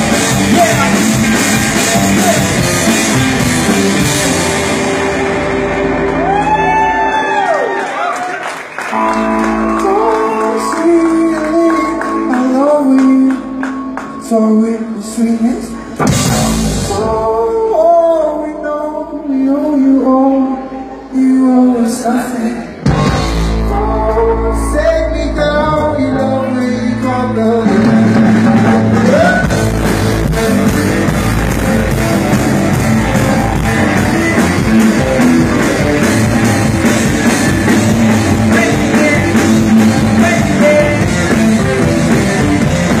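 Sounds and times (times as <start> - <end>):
person singing: 0.0 - 4.4, 9.0 - 43.0
drum kit: 0.0 - 7.7, 15.8 - 17.7, 22.8 - 43.0
electric guitar: 0.0 - 17.8, 22.6 - 43.0.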